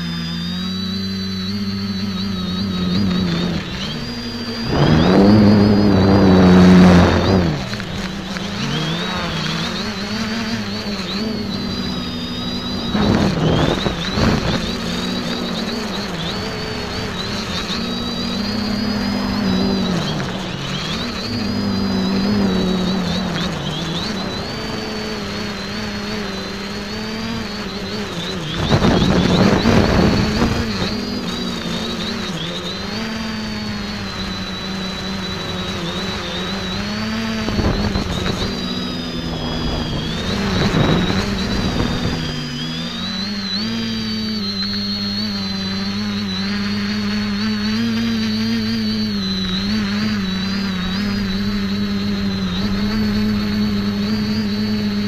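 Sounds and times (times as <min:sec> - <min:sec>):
drone propellers whining: 0:00.0 - 0:55.0
wind noise on microphone: 0:01.5 - 0:32.3, 0:32.9 - 0:45.3.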